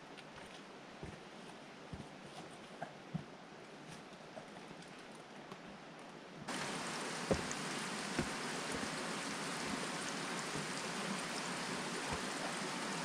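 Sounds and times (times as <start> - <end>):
stream water rushing: 6.5 - 13.0
boots knocking on rock: 6.6 - 9.2, 9.8 - 10.9, 12.0 - 12.6.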